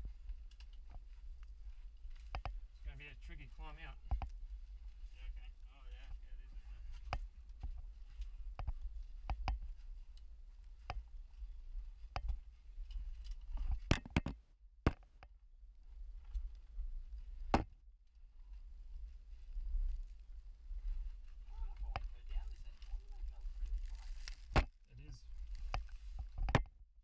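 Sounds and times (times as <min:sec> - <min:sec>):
steady low rumble: 0:18.2 - 0:26.2.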